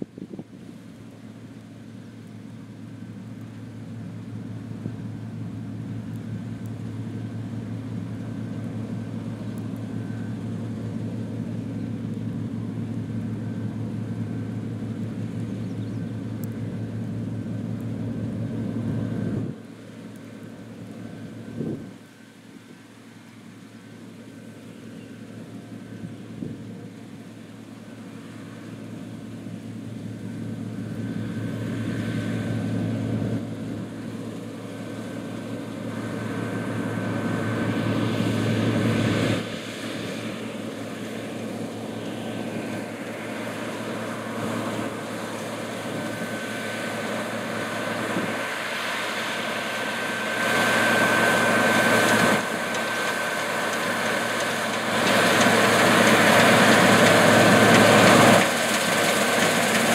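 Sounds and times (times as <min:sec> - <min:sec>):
combine harvester droning: 0:00.0 - 0:59.9
thin steady whine: 0:00.0 - 0:59.9.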